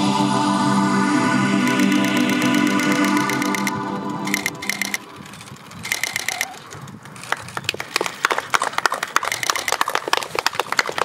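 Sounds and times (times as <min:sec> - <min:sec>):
audience clapping: 0:07.2 - 0:11.0.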